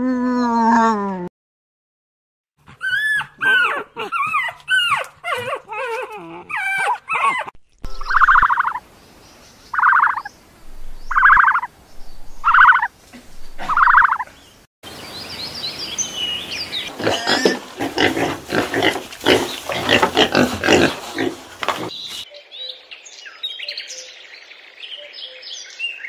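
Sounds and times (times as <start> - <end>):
birds chirping faintly: 7.6 - 17.8
wild boar snuffling and snorting: 10.6 - 14.2, 16.9 - 22.2
short animal calls: 12.4 - 14.2.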